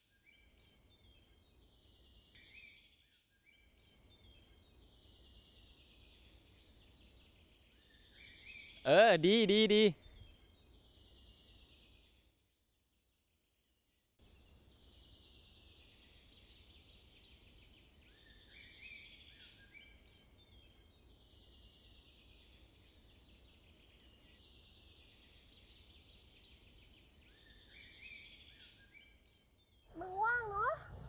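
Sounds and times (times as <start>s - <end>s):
small birds chirping: 29.1s - 31.0s.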